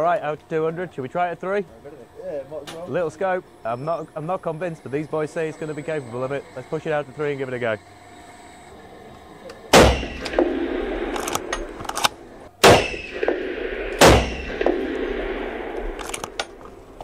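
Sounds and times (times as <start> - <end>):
rifle shots reverberating indoors: 9.8 - 11.8, 12.6 - 16.4.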